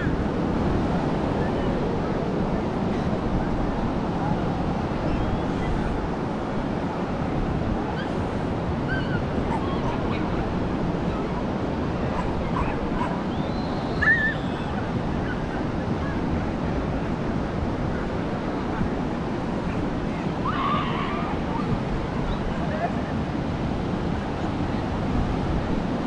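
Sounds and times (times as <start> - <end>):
ocean surf washing ashore: 0.0 - 26.0
wind: 0.0 - 26.0.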